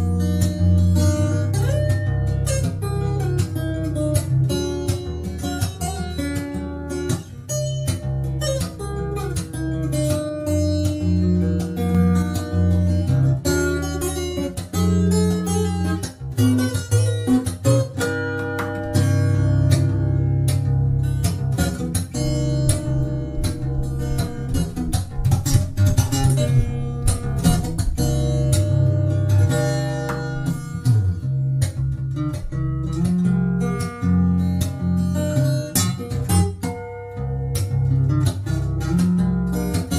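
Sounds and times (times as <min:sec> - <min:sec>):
fingerstyle acoustic guitar: 0:00.0 - 0:39.9.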